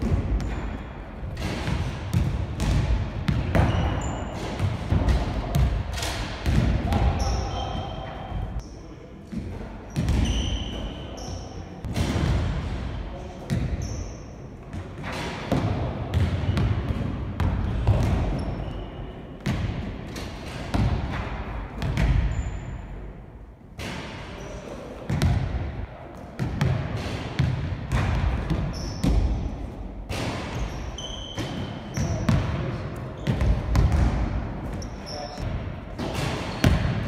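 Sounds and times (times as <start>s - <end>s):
basketballs bouncing on wooden floor: 0.0s - 8.6s, 9.4s - 10.8s, 14.7s - 18.8s, 19.4s - 22.5s, 25.1s - 25.6s, 26.4s - 29.5s, 30.1s - 37.0s
shoe squeaks: 3.6s - 4.5s, 7.2s - 8.4s, 9.9s - 11.7s, 13.8s - 14.3s, 18.3s - 19.3s, 22.3s - 22.8s, 28.7s - 29.3s, 30.5s - 32.3s, 34.7s - 35.4s.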